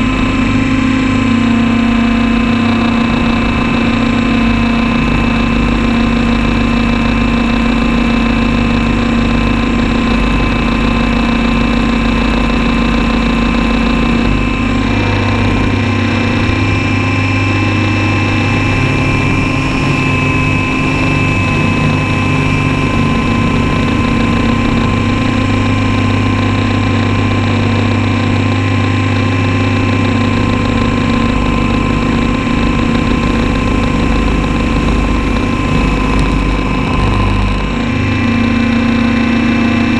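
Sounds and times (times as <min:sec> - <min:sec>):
rc copter motor drone: 0:00.0 - 0:39.9.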